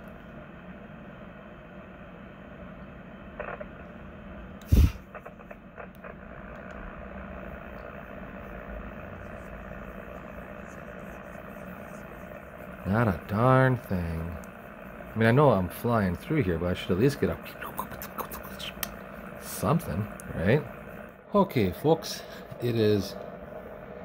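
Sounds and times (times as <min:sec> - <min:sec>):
radio static hiss: 0:00.0 - 0:24.0
faint crackles: 0:03.3 - 0:04.0, 0:04.6 - 0:21.2.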